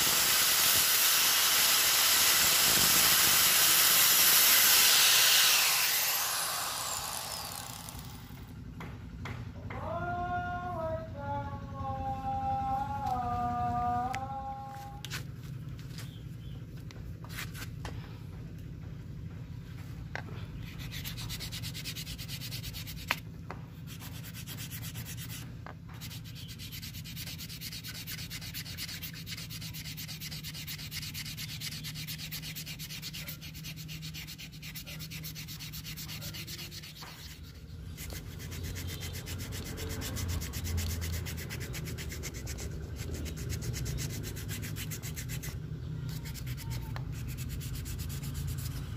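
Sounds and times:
sandpaper rubbing wood: 2.4 - 8.2, 20.6 - 23.2, 23.8 - 48.9.

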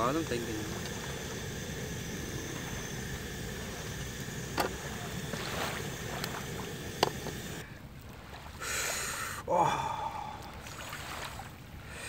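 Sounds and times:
low rushing background: 0.0 - 7.6.

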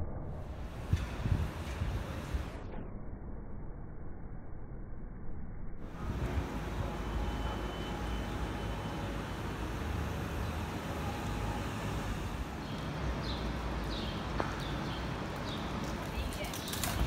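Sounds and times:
wet street noise: 0.4 - 2.6, 5.8 - 17.0
traffic rumble: 5.8 - 17.0.

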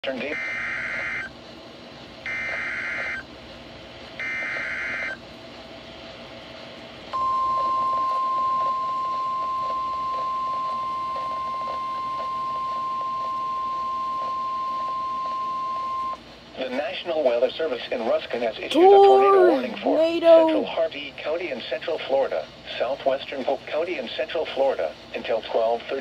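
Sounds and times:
steady warning alarm tone: 0.4 - 1.3, 2.3 - 3.2, 4.2 - 5.2, 7.2 - 16.2.

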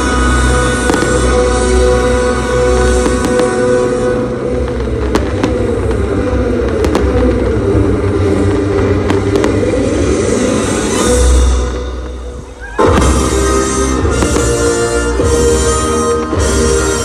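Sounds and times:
rumble of fireworks bursting: 0.0 - 17.0
sharp firework cracks: 0.8 - 1.9, 2.8 - 15.6.

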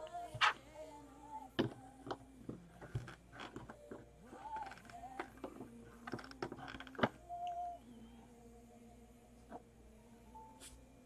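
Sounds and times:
plastic bricks clicking: 1.6 - 7.2.

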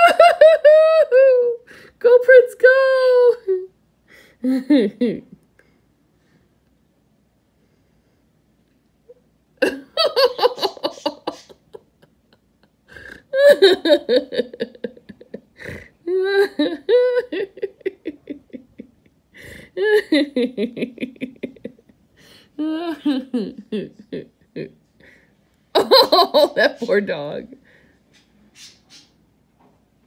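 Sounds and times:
woman laughing in breathless bursts: 0.0 - 1.9, 3.5 - 5.4, 9.6 - 26.9.

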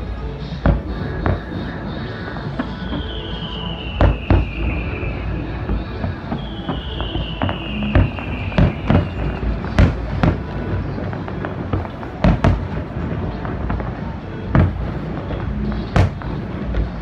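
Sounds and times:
fireworks crackling: 0.0 - 17.0
fireworks bangs: 0.4 - 17.0
falling firework whistle: 0.7 - 13.4.

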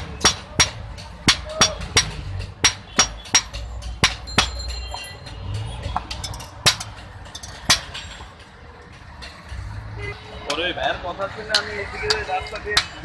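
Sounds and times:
hammer striking steel on anvil: 0.0 - 9.7.

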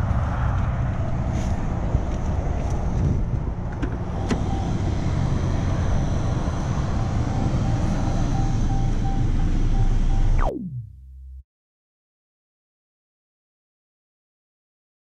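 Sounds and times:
low rumble: 9.3 - 11.4.

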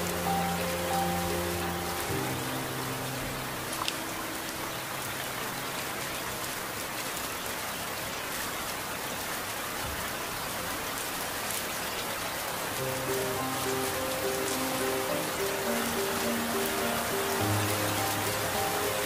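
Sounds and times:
soft music: 0.0 - 7.2, 12.8 - 19.0
heavy rain hiss: 0.0 - 19.0
rain drop ticks: 3.3 - 7.4.

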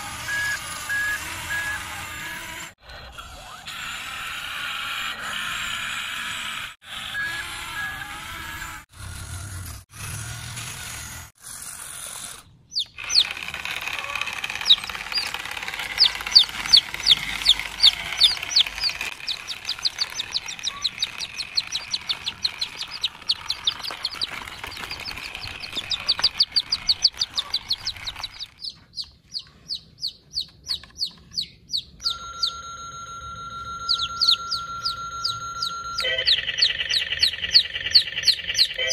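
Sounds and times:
buzzing electronic tone: 0.0 - 2.7
baby chicks peeping: 0.1 - 2.7, 12.7 - 32.6, 33.8 - 38.9
electronic tones: 0.2 - 2.1, 32.0 - 38.9.

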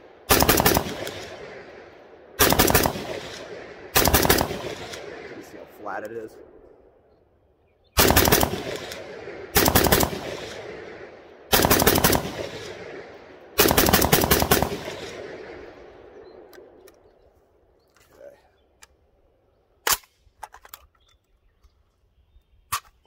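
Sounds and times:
rifle shots in rapid strings: 0.2 - 1.8, 2.4 - 5.7, 8.0 - 15.8.

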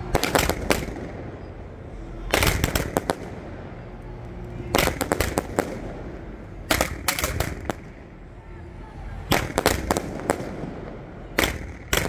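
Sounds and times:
fireworks firing sharp shots: 0.0 - 1.5, 2.2 - 3.8, 4.6 - 8.2, 9.2 - 12.0
steady noise: 0.0 - 12.0.

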